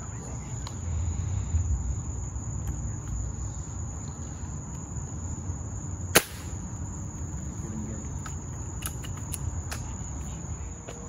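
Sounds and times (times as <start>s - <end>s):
night insects trilling: 0.0s - 11.0s
air rifle shot: 6.1s - 6.6s.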